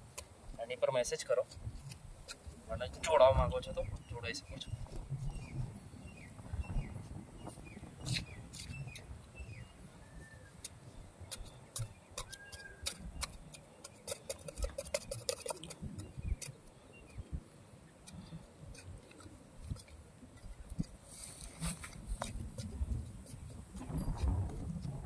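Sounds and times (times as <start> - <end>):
hand trowel scraping in soil: 8.0 - 9.0, 11.3 - 16.6, 20.6 - 24.9.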